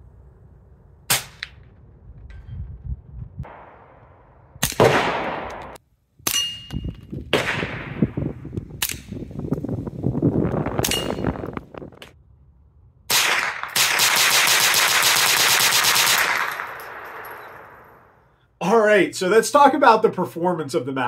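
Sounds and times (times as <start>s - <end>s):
muted suppressed gunshots: 1.1s - 1.7s, 3.5s - 6.4s, 7.3s - 9.2s, 13.1s - 18.0s
high metallic ping: 6.3s - 6.9s, 10.8s - 11.4s.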